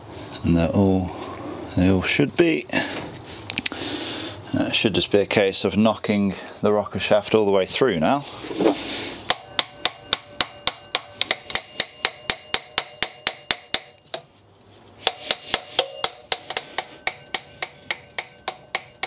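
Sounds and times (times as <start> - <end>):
hammer tapping metal: 9.2 - 14.3, 15.0 - 19.0.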